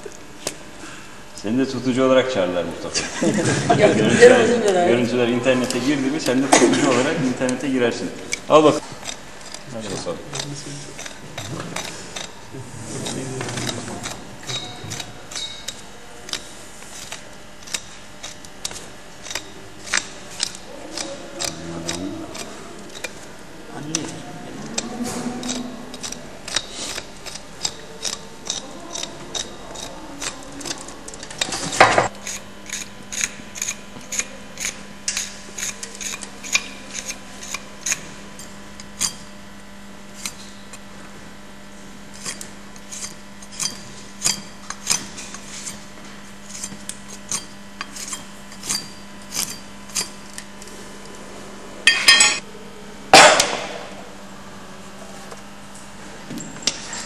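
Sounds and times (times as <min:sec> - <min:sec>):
hand tools cutting hoof horn: 0:03.2 - 0:51.2, 0:53.1 - 0:53.9
tool clatter: 0:08.3 - 0:23.2, 0:42.1 - 0:50.5, 0:51.9 - 0:52.4.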